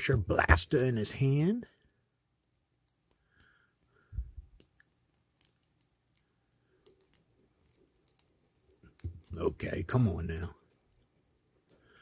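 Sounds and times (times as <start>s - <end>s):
small plastic parts clicking: 1.8s - 9.7s.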